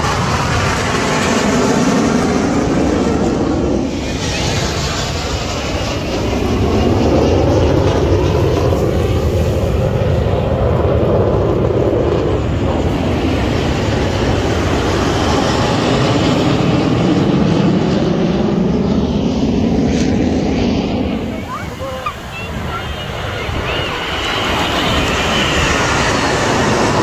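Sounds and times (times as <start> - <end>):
jet engines flying overhead: 0.0 - 27.0.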